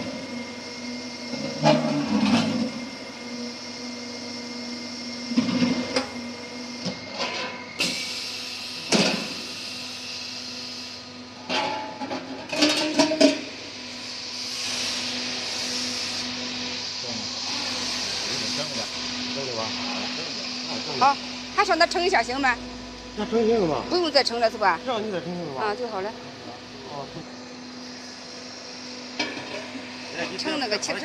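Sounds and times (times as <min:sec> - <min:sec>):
roll forming machine humming: 0:00.0 - 0:31.0.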